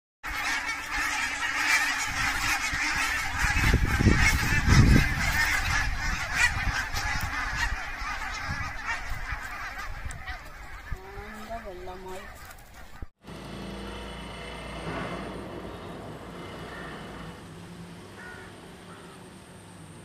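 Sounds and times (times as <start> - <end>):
geese honking: 0.2 - 13.1, 13.7 - 19.9
wind buffeting microphone: 1.8 - 13.1.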